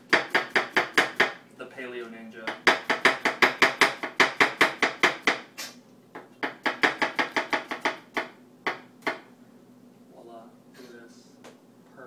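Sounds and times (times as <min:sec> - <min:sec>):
knife chopping on plastic board: 0:00.0 - 0:01.4, 0:02.5 - 0:05.5, 0:06.2 - 0:09.3.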